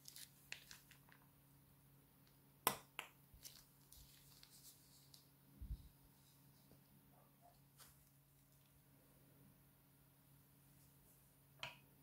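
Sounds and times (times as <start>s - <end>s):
plastic piping bag crackling: 0.0s - 1.3s, 3.4s - 5.3s.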